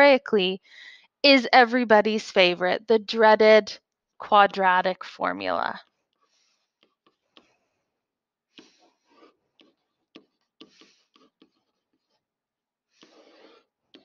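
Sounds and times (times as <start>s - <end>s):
stylus scratching on tablet: 8.6s - 12.2s, 13.0s - 14.0s.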